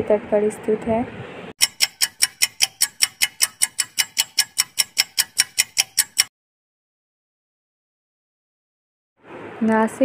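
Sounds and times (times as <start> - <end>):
clock ticking: 1.6 - 6.3.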